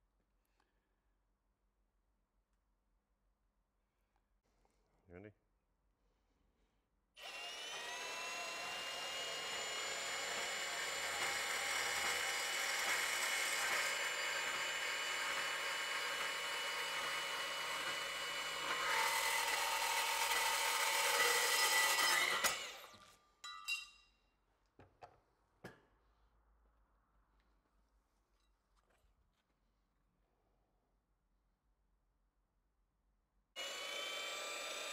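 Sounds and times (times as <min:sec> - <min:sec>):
band saw cutting steel: 0:07.2 - 0:23.0, 0:33.6 - 0:34.9.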